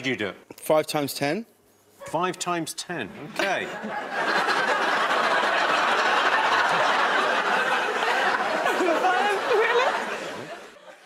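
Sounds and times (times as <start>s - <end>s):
audience laughing: 3.4s - 11.0s.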